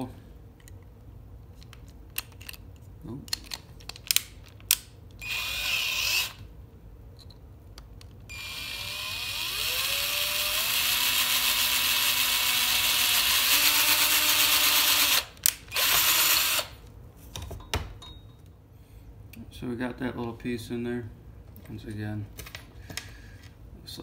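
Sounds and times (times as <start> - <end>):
power drill whining: 5.2 - 6.4, 8.3 - 16.8.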